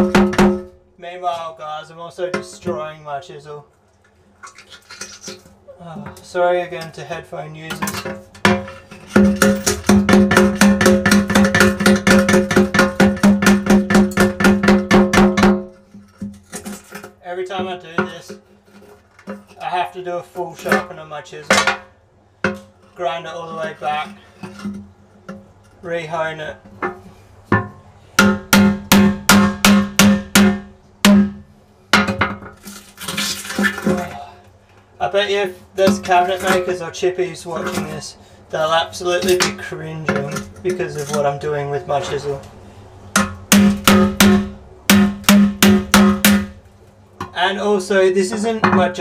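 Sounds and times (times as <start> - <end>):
chisel chipping on glass: 8.5 - 16.3, 43.2 - 46.6.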